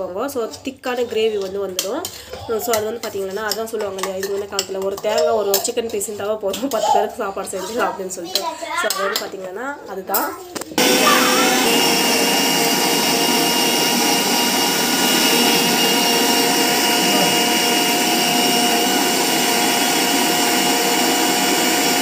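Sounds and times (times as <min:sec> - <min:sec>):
mixer grinder grinding paste: 0:00.0 - 0:09.3, 0:10.5 - 0:22.0.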